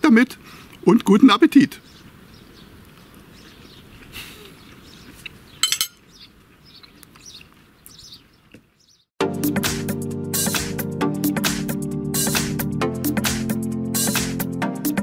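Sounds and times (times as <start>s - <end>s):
bird chirps: 1.8s - 9.1s
cutlery clinking: 5.6s - 6.0s.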